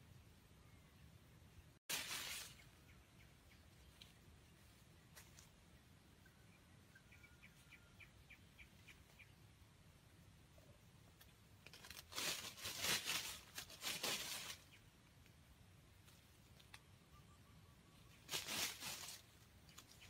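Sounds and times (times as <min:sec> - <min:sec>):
faint high chirps: 0:00.0 - 0:09.5, 0:16.8 - 0:18.3
chicken rustling in dry leaves: 0:01.9 - 0:02.8, 0:11.6 - 0:15.0, 0:18.0 - 0:20.0.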